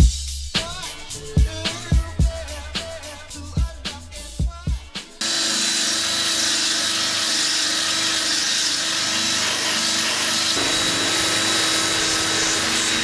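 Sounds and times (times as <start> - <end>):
electric drill with wire brush: 5.2 - 13.0.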